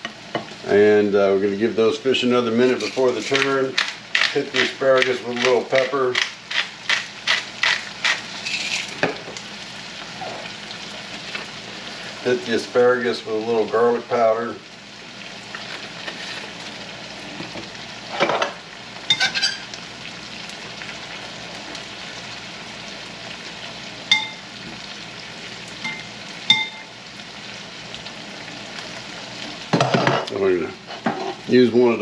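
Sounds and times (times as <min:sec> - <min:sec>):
fish sizzling in a pan: 0:00.0 - 0:32.0
tongs clinking on ceramic bowl: 0:19.1 - 0:19.7.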